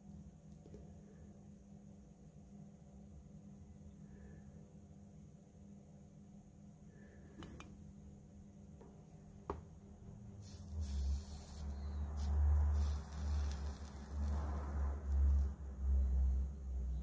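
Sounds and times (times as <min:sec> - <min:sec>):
solder flux sizzling: 0:10.2 - 0:16.5.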